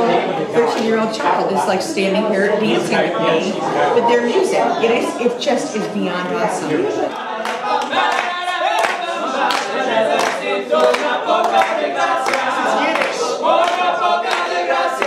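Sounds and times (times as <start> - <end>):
people clapping along: 0.0 - 1.7, 7.1 - 15.0
male group singing a cappella: 6.7 - 15.0.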